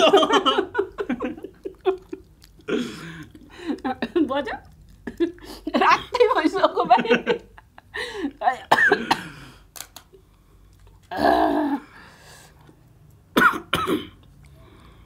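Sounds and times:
person coughing: 8.7s - 9.4s, 13.4s - 14.2s.

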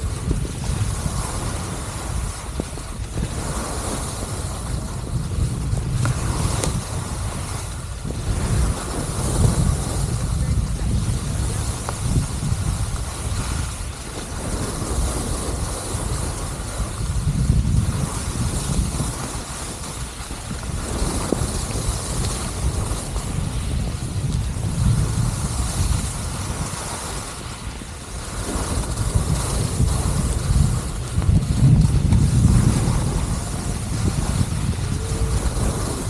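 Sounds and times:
skis sliding on packed snow: 0.0s - 36.0s
wind buffeting microphone: 0.0s - 36.0s.

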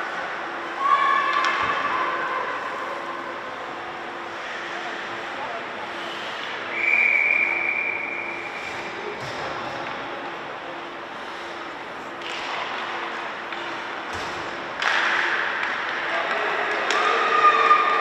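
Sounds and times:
arena crowd noise: 0.0s - 18.0s
referee's whistle: 6.7s - 8.4s.

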